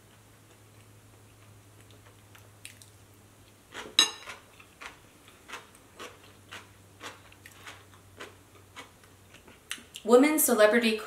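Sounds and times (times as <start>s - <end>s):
soft chewing: 0.0s - 10.1s
spoon clinking in ceramic bowl: 4.0s - 4.4s.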